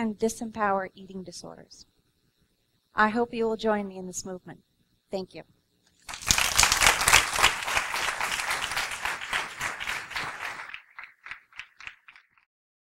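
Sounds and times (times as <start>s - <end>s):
audience applauding: 6.1s - 12.4s.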